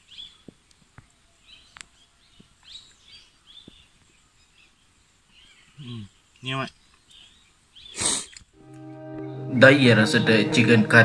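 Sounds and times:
bird chirping: 0.0s - 10.3s.

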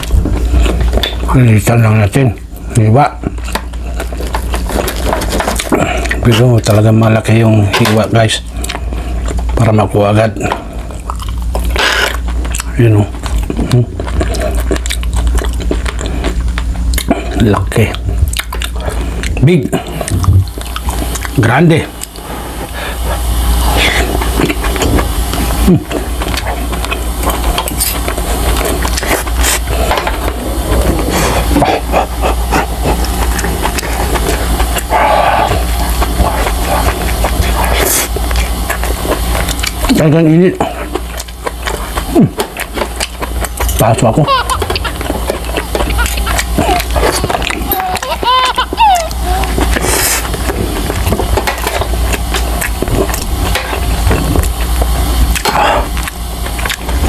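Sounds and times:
chewing and wet mouth noises: 0.0s - 57.0s
steady low hum: 0.0s - 57.0s
breathy huffing: 33.9s - 36.8s.

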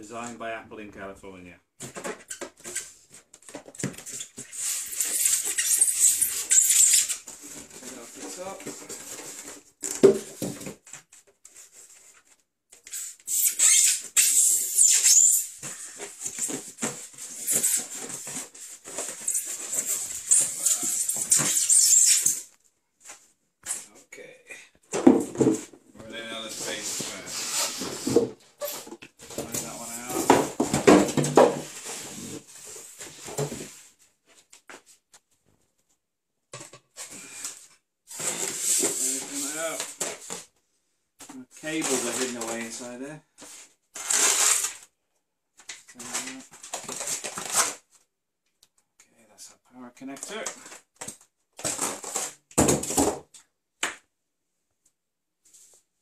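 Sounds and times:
cardboard and foam packaging rustling: 1.8s - 23.9s, 24.9s - 36.0s, 36.6s - 40.6s, 41.2s - 45.0s, 45.6s - 48.1s, 50.2s - 53.3s
squeaky foam scraping: 4.0s - 9.2s, 12.8s - 22.5s, 26.3s - 28.9s, 38.1s - 40.0s, 44.0s - 44.8s.

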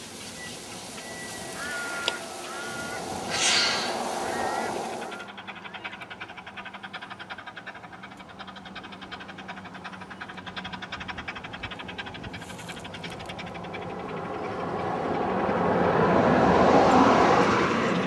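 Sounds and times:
steam hiss: 0.0s - 5.3s
steam locomotive exhaust beats: 0.0s - 17.0s.

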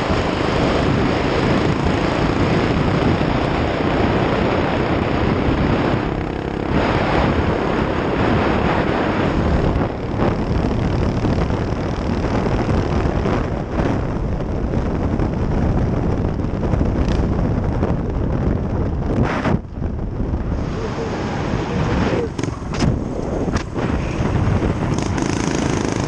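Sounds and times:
wind noise on microphone: 0.0s - 26.0s
small engine running: 24.9s - 26.0s.

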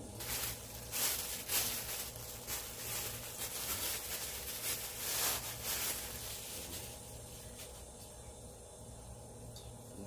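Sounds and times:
steady low hum: 0.0s - 10.0s
packaging rustling: 0.2s - 7.9s.

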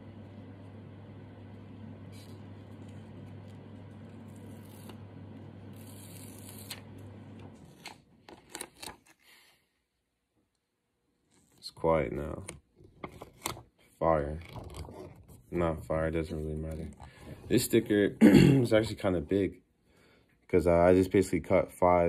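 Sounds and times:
low machine hum: 0.0s - 8.4s
paper rustling and tearing: 2.1s - 5.0s, 5.7s - 7.0s, 7.6s - 9.6s.

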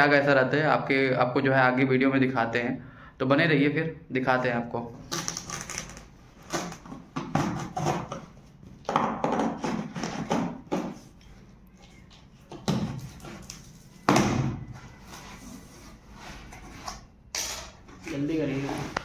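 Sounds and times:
knife slitting packing tape: 5.1s - 8.2s.

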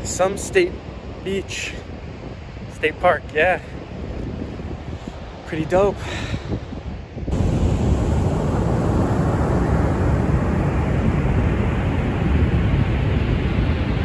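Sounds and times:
wind rumble on microphone: 0.0s - 14.0s
surf breaking on beach: 7.3s - 14.0s.

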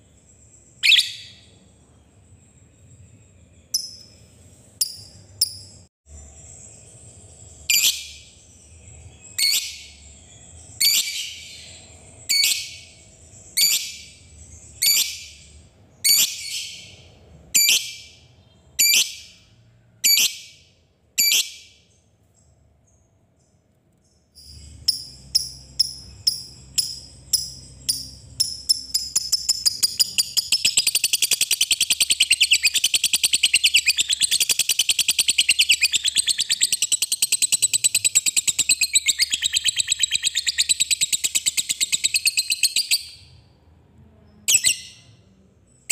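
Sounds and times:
lovebird chirping and chattering: 0.8s - 1.5s, 6.4s - 17.0s, 17.6s - 19.4s, 24.4s - 43.3s, 44.5s - 45.2s.

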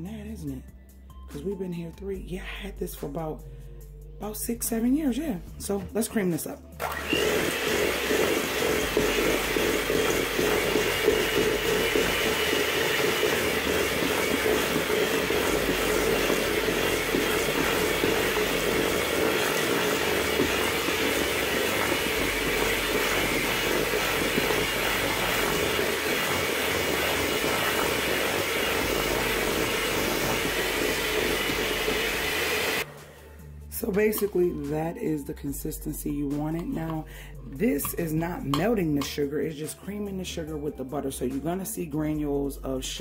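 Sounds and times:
electric hand mixer running: 6.8s - 33.3s.

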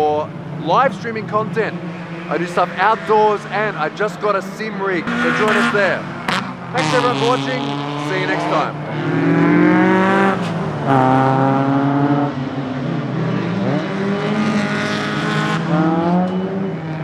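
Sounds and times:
car engine revving hard: 4.9s - 17.0s.

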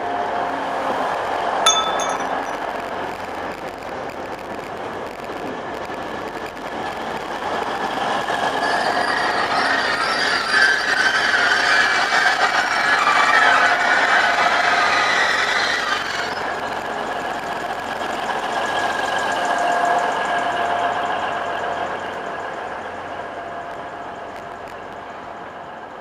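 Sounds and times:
sharp metallic clink: 1.7s - 2.6s.

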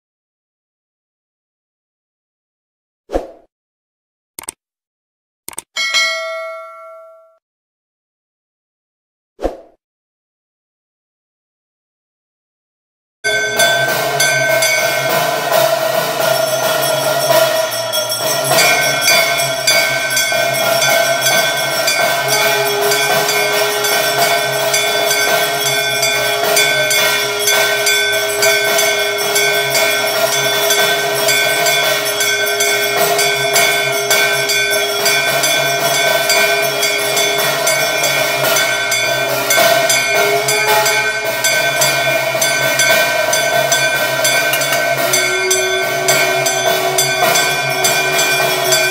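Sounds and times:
temple bells ringing: 5.8s - 7.4s, 13.3s - 48.9s
steady low tone: 13.3s - 48.9s.

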